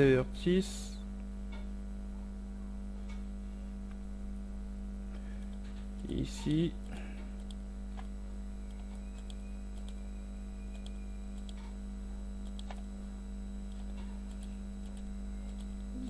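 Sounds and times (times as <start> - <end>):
electrical hum: 0.0 - 16.0
computer mouse clicks: 5.4 - 10.0, 10.7 - 11.8, 12.4 - 12.9, 13.7 - 15.8.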